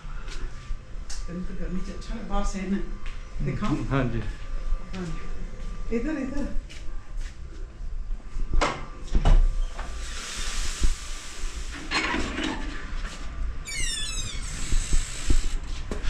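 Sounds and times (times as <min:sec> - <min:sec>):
door thumps and hiss: 0:09.1 - 0:11.9, 0:14.2 - 0:16.0.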